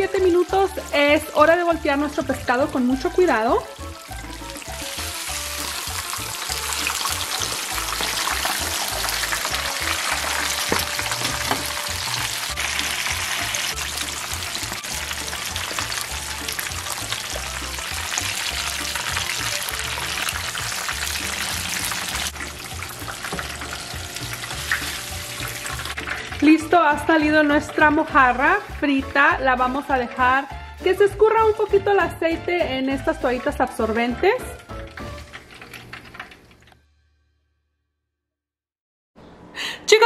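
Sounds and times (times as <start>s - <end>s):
fish deep-frying in oil: 0.0s - 29.2s, 34.5s - 36.7s.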